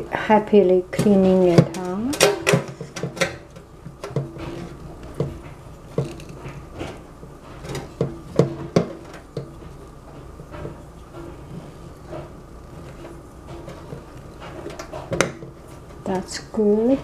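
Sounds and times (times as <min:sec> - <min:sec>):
spatula scraping metal pot: 0:01.0 - 0:17.0
spatula knocking on metal pot: 0:07.9 - 0:09.6.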